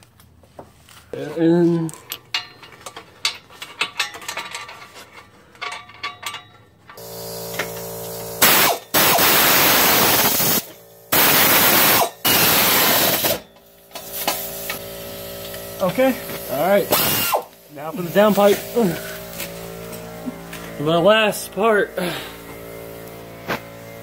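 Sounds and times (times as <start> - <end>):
wrenches clinking on bolts: 1.7 - 7.0
loud hissing bursts: 7.0 - 13.4, 14.0 - 19.7.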